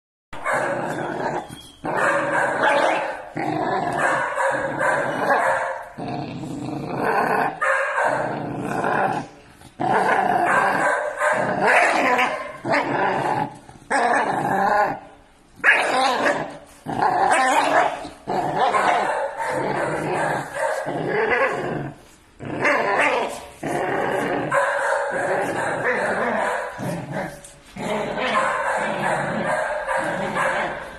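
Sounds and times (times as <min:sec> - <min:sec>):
puppy barks: 0:00.4 - 0:06.0, 0:07.5 - 0:08.3, 0:10.4 - 0:12.7, 0:15.6 - 0:16.6, 0:17.3 - 0:21.6, 0:24.4 - 0:27.4, 0:28.0 - 0:30.9
puppies growling: 0:00.5 - 0:15.1, 0:15.8 - 0:30.9.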